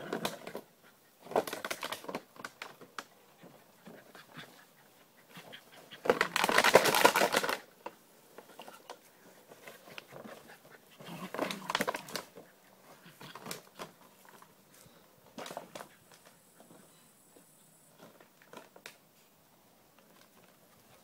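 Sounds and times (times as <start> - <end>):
plastic bottle crackling: 1.3 - 2.8, 6.1 - 7.7.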